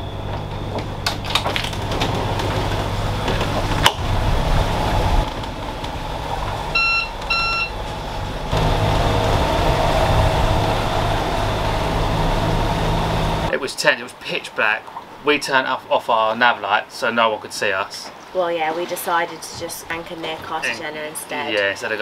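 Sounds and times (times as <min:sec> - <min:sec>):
diesel engine running: 0:00.0 - 0:13.5
short electronic beeps: 0:06.8 - 0:07.8.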